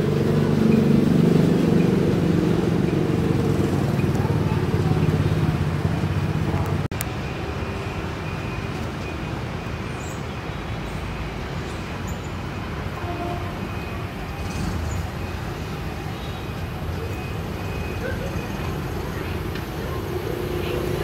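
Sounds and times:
traffic-like hiss and rumble: 0.0 - 21.0.

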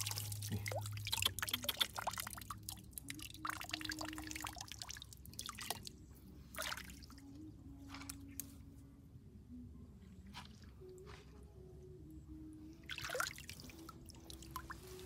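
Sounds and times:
water dripping from hands: 0.0 - 5.9.

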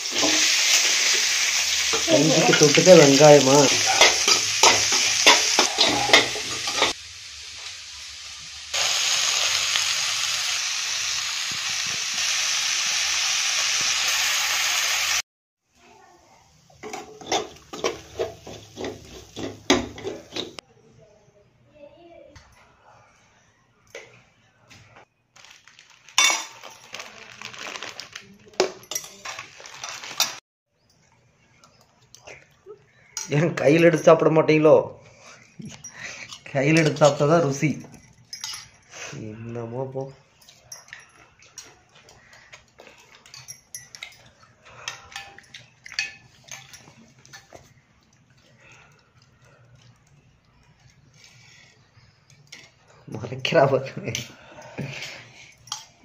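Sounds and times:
onions sizzling in oil: 0.0 - 15.2
spatula scraping pan: 3.7 - 7.0, 16.8 - 20.6
spatula scraping and stirring: 16.8 - 20.6, 41.5 - 52.9.

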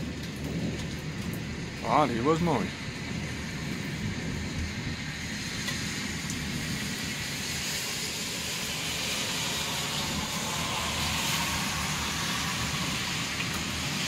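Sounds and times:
distant rolling thunder: 0.0 - 14.0
heavy rain hiss: 0.0 - 14.0.

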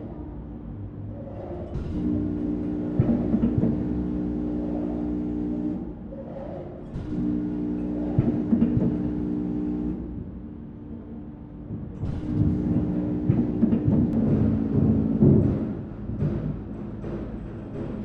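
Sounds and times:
packaging machine humming: 7.0 - 10.0, 12.1 - 16.2.

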